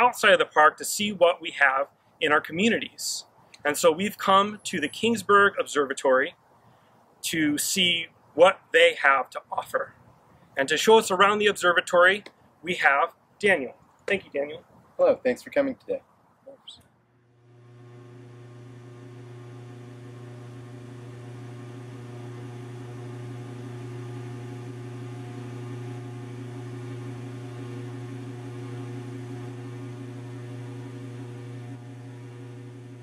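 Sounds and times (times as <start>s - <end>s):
steady low hum: 16.5s - 33.0s.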